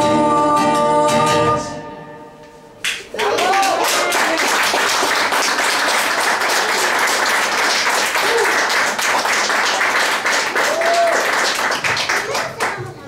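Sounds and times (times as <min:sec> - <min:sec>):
audience applauding: 0:02.9 - 0:13.0.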